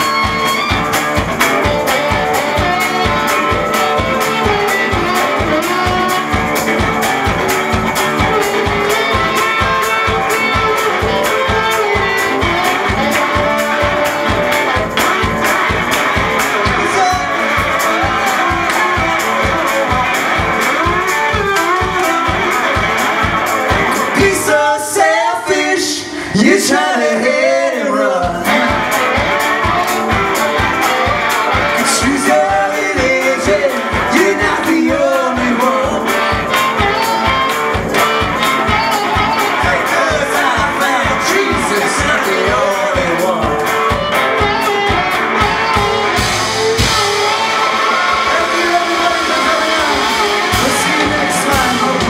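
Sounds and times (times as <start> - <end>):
harmonica through a microphone: 0.0 - 15.1, 35.9 - 52.0
drums playing a driving beat: 0.0 - 27.0, 27.8 - 52.0
electric guitar: 0.0 - 52.0.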